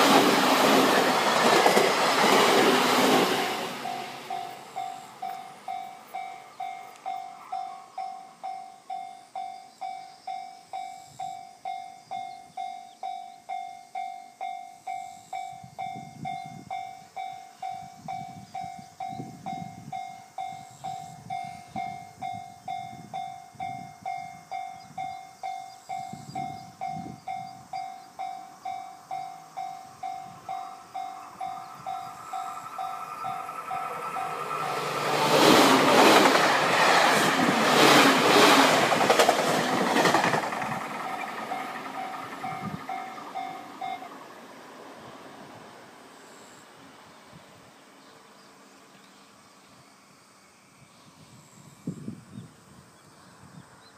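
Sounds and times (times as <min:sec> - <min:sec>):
level crossing warning bell: 0:03.6 - 0:38.0, 0:40.0 - 0:44.2.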